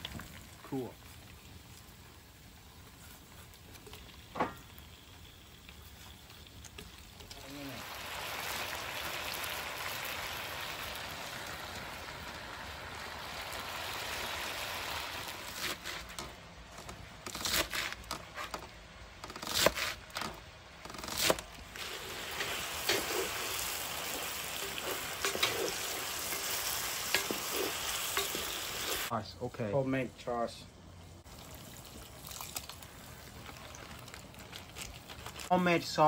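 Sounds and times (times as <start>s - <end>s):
tomatoes sizzling in oil: 0.0s - 16.4s, 21.2s - 29.1s.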